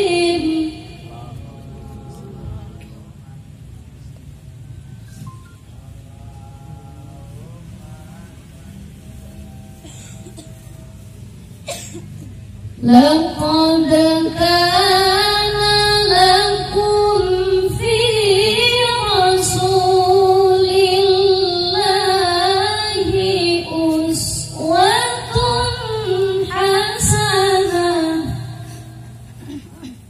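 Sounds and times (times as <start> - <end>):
woman singing devotional song: 0.0 - 2.5, 12.8 - 29.3.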